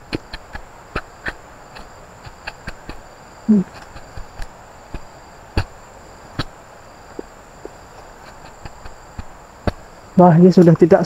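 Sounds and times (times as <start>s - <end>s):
high-pitched insect drone: 0.0s - 11.0s
sharp clicks and knocks: 6.4s - 9.8s.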